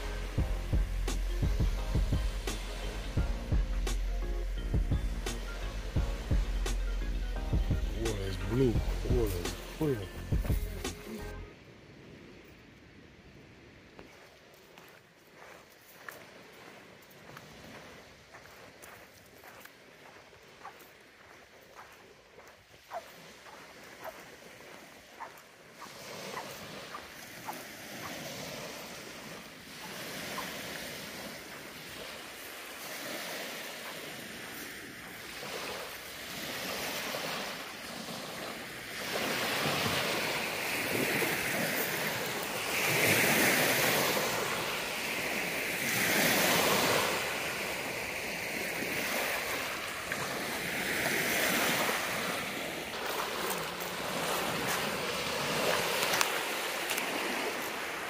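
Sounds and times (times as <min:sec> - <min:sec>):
small waves breaking on shore: 0:00.0 - 0:58.0.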